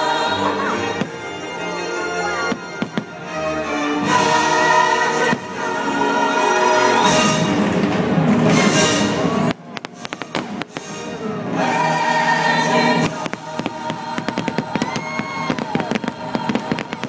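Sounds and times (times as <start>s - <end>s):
choral music with sung notes: 0.0s - 9.4s, 10.1s - 17.0s
fireworks popping and crackling: 2.5s - 3.2s, 8.4s - 11.2s, 13.0s - 17.0s.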